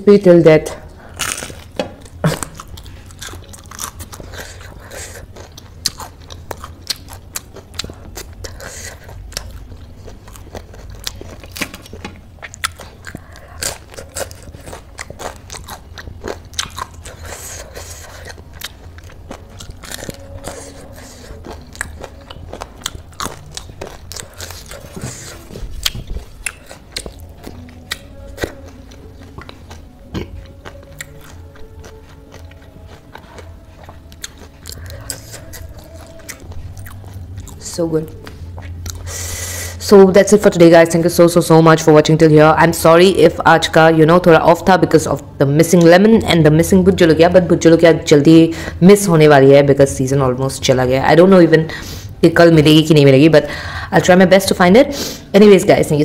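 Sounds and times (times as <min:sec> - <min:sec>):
crunchy chewing: 0:01.0 - 0:39.6.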